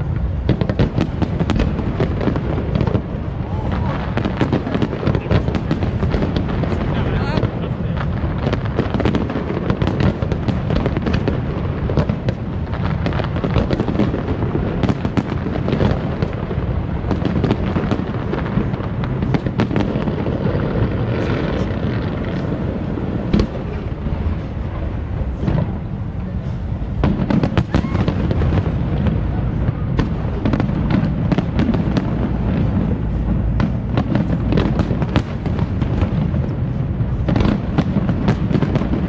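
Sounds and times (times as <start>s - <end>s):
fireworks bursting: 0.0s - 39.0s
deep rumble: 10.2s - 39.0s.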